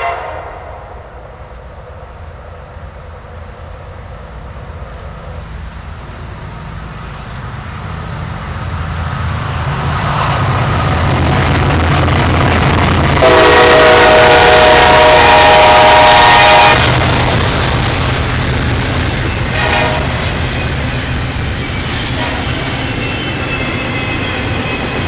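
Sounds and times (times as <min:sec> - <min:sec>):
locomotive horn: 0:00.0 - 0:01.0, 0:13.2 - 0:17.0, 0:19.5 - 0:20.4, 0:22.1 - 0:22.8
locomotive engine rumble: 0:00.0 - 0:25.0.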